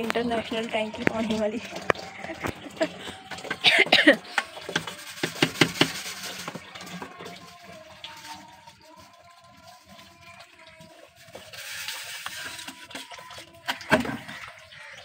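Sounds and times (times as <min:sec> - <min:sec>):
water sloshing in bucket: 0:00.0 - 0:15.0
metal pan knocking: 0:00.1 - 0:06.8.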